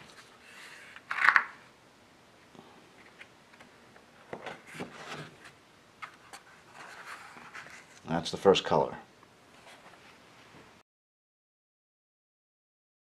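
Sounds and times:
paper rustling: 0:04.4 - 0:08.1.

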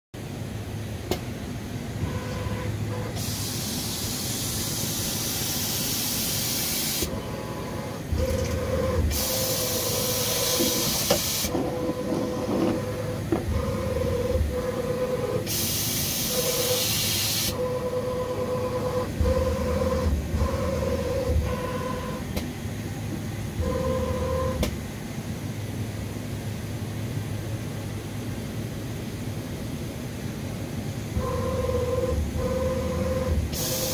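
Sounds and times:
mill motors whining: 0:02.0 - 0:22.4, 0:23.6 - 0:24.8, 0:31.1 - 0:33.9.

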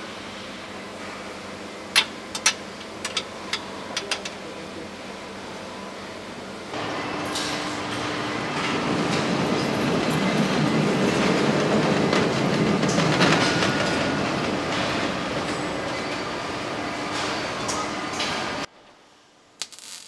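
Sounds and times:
car body rolling on roller conveyor: 0:06.7 - 0:18.7.

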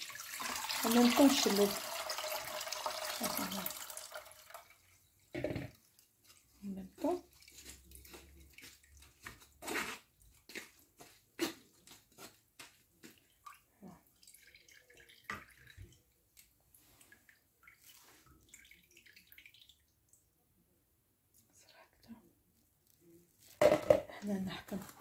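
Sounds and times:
juice dripping and trickling: 0:00.0 - 0:20.3
wooden spoon pressing pulp: 0:05.4 - 0:13.4.

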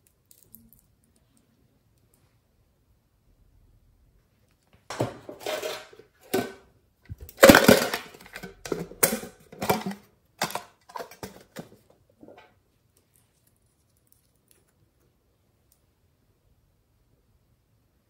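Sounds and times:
tin box clicking and rustling: 0:04.9 - 0:06.6, 0:07.2 - 0:11.8.

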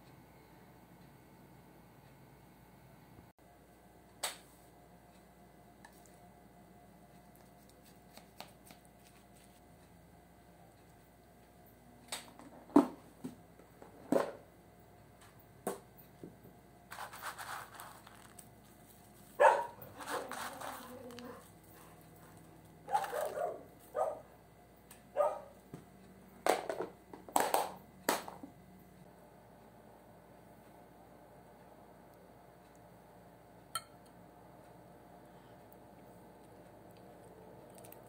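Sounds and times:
potato sticks shaken out: 0:16.9 - 0:18.6, 0:19.8 - 0:21.4.

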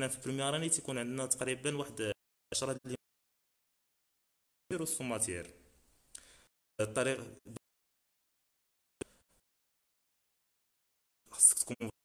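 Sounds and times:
man speaking: 0:00.0 - 0:03.0, 0:04.7 - 0:05.7, 0:06.8 - 0:07.6, 0:11.3 - 0:12.0.

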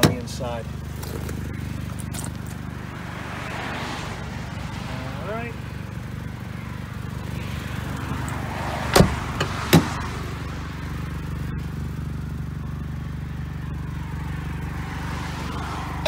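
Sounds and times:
car door clunks: 0:00.0 - 0:02.6, 0:08.9 - 0:10.0
car engine idling: 0:00.0 - 0:16.0.

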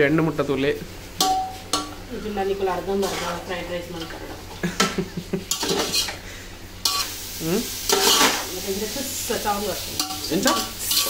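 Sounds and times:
vegetables sizzling in a pan: 0:00.0 - 0:11.0
spatula scraping a pan: 0:01.2 - 0:04.6, 0:05.5 - 0:07.2, 0:07.8 - 0:08.6, 0:09.8 - 0:11.0.

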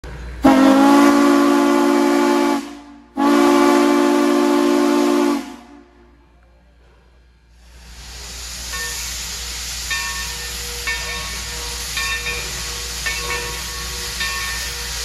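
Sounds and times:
steam locomotive whistle: 0:00.4 - 0:06.1
steam rushing: 0:06.8 - 0:15.0.

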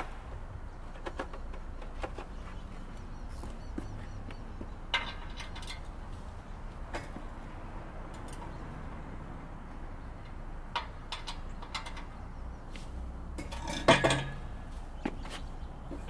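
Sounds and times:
metal tools clinking and clanking: 0:04.9 - 0:05.9, 0:13.4 - 0:14.5.

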